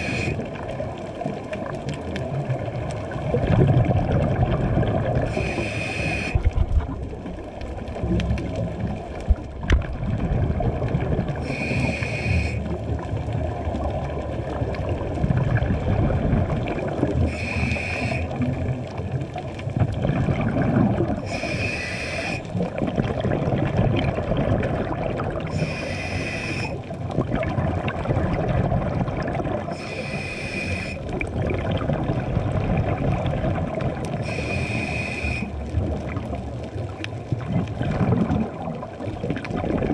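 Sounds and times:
scuba regulator breathing hiss: 0.0 - 0.5, 5.2 - 6.5, 11.4 - 12.7, 17.2 - 18.4, 21.2 - 22.5, 25.5 - 26.8, 29.7 - 31.1, 34.2 - 35.6
underwater bubbling: 0.0 - 39.9.

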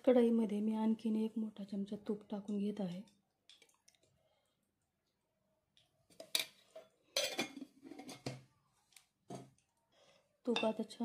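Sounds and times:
metal utensils clinking and clattering: 6.2 - 8.4.

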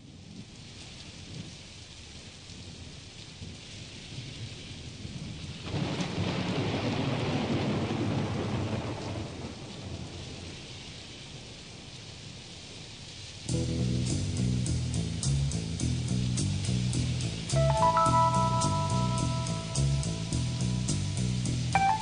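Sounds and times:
steady rain falling: 0.0 - 22.0
thunder rolling: 5.7 - 10.0.

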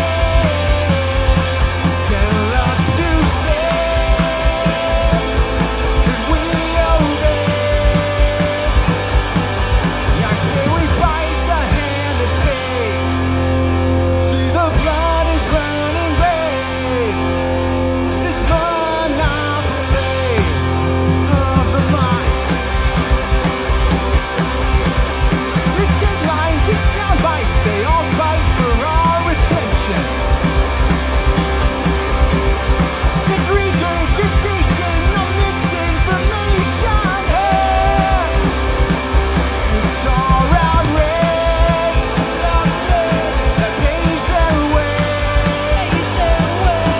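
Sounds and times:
man singing: 0.0 - 9.1, 10.1 - 13.3, 14.1 - 17.4, 18.1 - 22.6, 25.6 - 30.2, 33.2 - 38.6, 39.6 - 46.9
punk rock band playing: 0.0 - 46.9.

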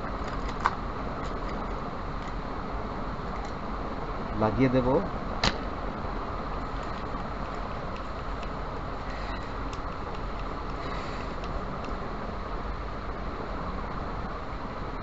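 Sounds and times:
steady rushing background noise: 0.0 - 15.0
sharp click: 5.4 - 5.6.

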